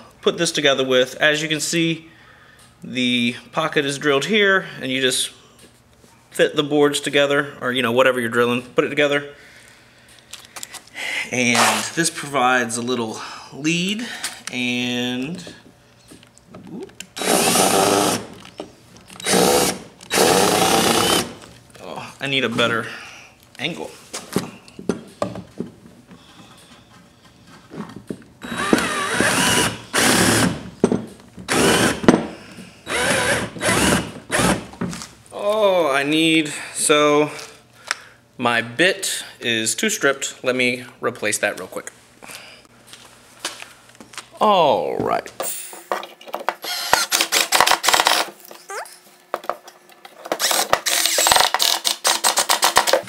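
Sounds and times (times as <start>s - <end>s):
cordless drill driving screw: 17.2s - 18.3s, 19.2s - 21.4s, 28.4s - 30.5s, 31.5s - 32.0s, 32.9s - 34.6s, 46.6s - 48.3s, 50.4s - 53.0s.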